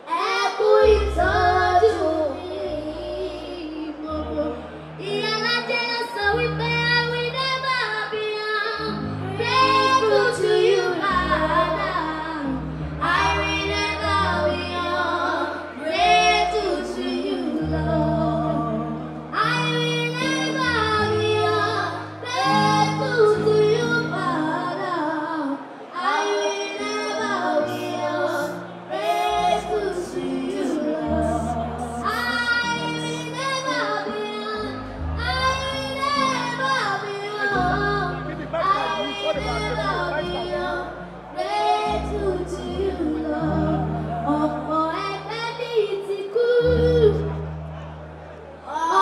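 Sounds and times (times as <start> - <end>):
girls singing into microphones: 0.0 - 47.4
musical accompaniment with deep bass: 34.6 - 45.7, 46.7 - 48.7.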